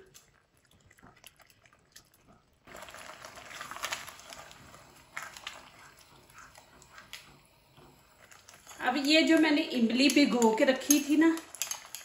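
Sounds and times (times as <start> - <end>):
wet squelching and scraping sauce: 0.0 - 9.4
utensil clicking against pan: 8.6 - 12.0.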